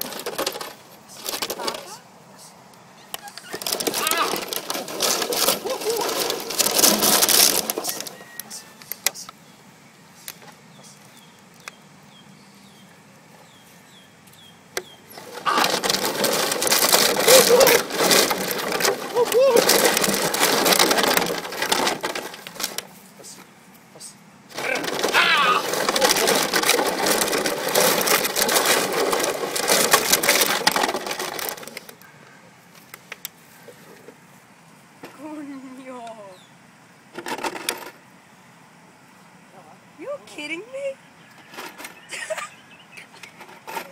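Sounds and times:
plastic bottles crinkling and clattering: 0.0 - 1.9, 3.2 - 8.4, 15.1 - 23.4, 24.5 - 32.0
sharp plastic crackles: 0.0 - 2.0, 3.1 - 9.3, 14.8 - 23.4, 24.5 - 32.1.

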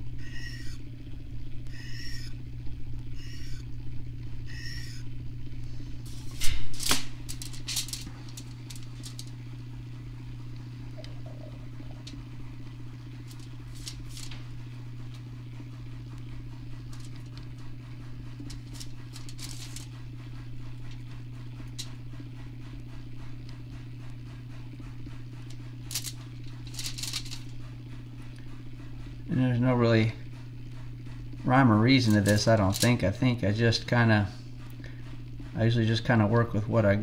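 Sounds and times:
motor humming: 0.0 - 37.0
sharp clicks and rustles: 6.1 - 9.5, 13.0 - 15.2, 16.2 - 20.2, 25.4 - 27.6, 32.1 - 33.0.

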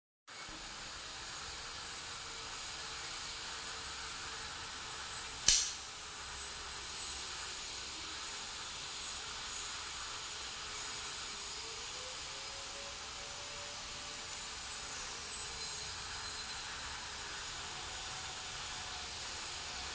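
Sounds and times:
steady hiss: 0.3 - 19.9
knife blade locking click: 5.4 - 5.8.

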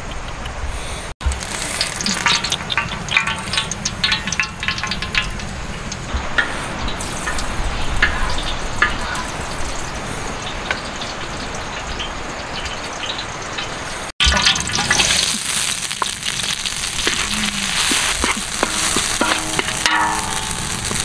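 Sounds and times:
wooden spatula stirring: 1.2 - 9.4, 14.6 - 21.0
oil sizzling and crackling in a wok: 1.2 - 21.0.

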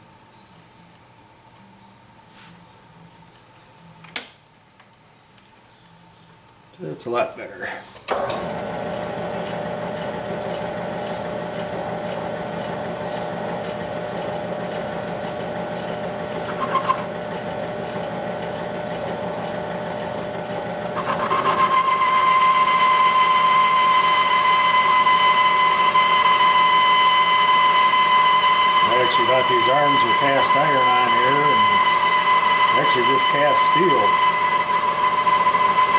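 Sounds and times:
lathe running: 8.1 - 35.9
high whine: 21.0 - 35.9.

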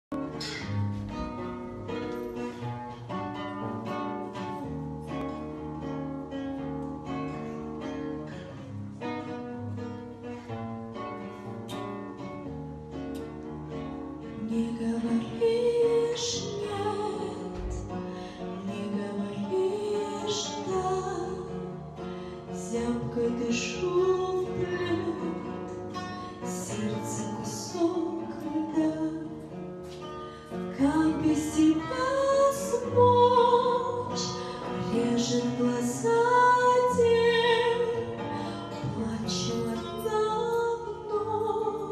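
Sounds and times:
plucked guitar: 0.0 - 41.9
woman singing slow song: 14.3 - 21.8, 22.4 - 29.6, 30.5 - 41.9.

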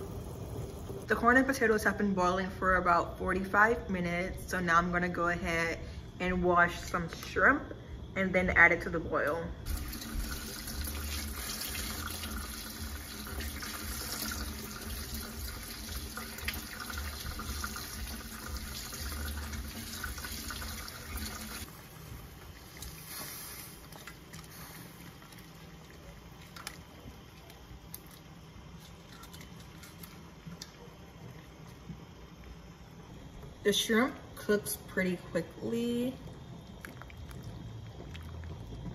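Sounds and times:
faucet running into a colander: 9.7 - 21.7.

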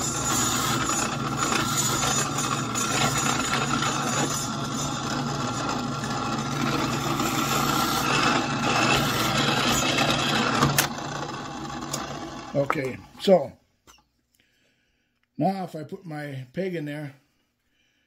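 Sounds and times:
drill press boring into wood: 0.0 - 12.9.

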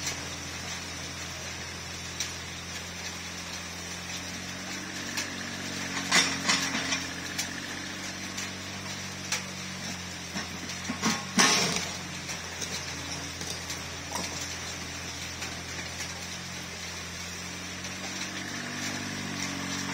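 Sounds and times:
excavator diesel engine running: 0.0 - 19.9
metallic clanks from bucket: 10.4 - 14.4.

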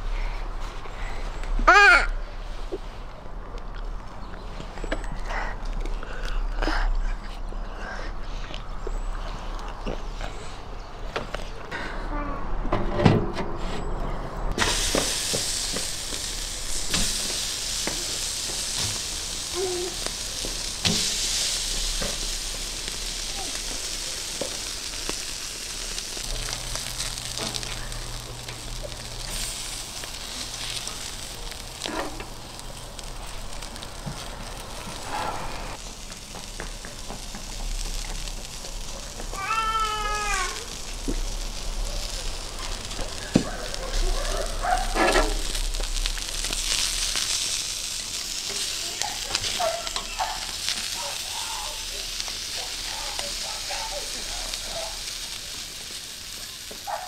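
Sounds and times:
meat sizzling on a grill: 14.6 - 57.0.

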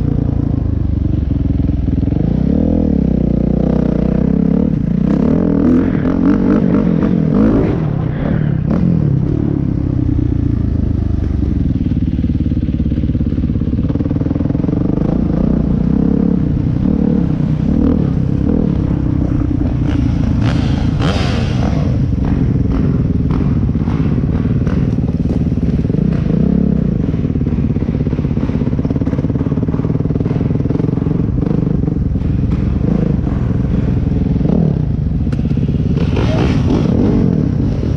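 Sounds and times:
dirt bike engine running: 0.0 - 37.9
clatter over rough ground: 16.5 - 37.9.

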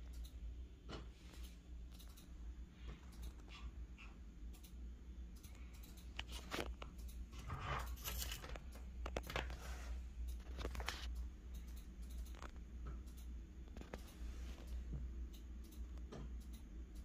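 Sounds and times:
steady low hum: 0.0 - 17.0
handling rustles and clicks: 5.9 - 11.2.

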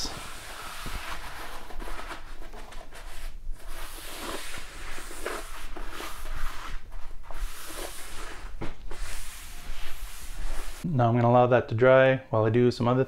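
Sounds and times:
paper towel wiping metal table: 3.2 - 10.9.

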